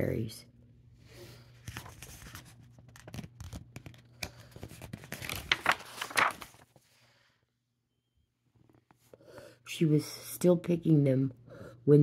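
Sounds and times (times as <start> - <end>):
book pages turning and rustling: 1.5 - 6.9.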